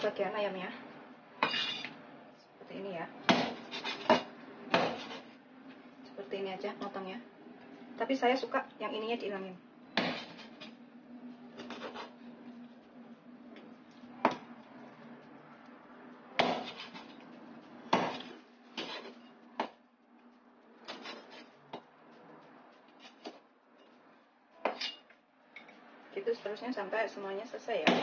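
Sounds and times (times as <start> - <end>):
knife chopping on wooden board: 3.3 - 5.2, 16.4 - 17.0, 17.9 - 19.0.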